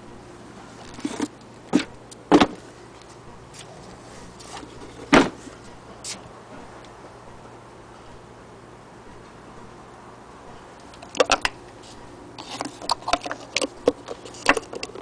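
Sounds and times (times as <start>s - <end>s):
loud thumps: 5.1s - 5.4s
handling knocks and clicks: 12.5s - 15.0s.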